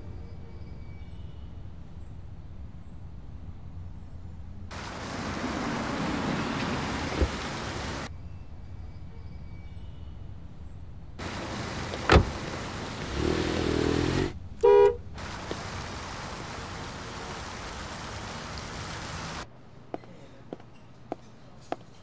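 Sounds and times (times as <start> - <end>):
street noise: 0.0 - 8.4, 10.9 - 22.0
car horn honk: 14.0 - 15.1.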